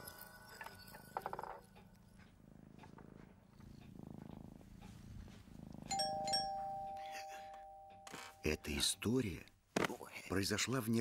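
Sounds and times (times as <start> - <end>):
cat purring: 0.2 - 7.5
two-note doorbell chime: 5.9 - 8.6.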